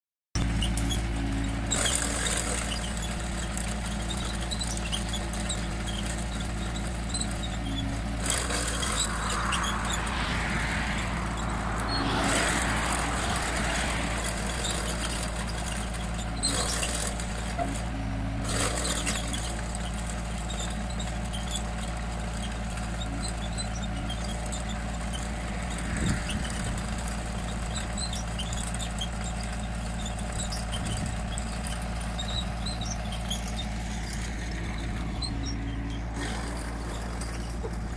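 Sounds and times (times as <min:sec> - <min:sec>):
diesel engine running under load: 0:00.4 - 0:37.9
rushing noise: 0:07.7 - 0:16.1.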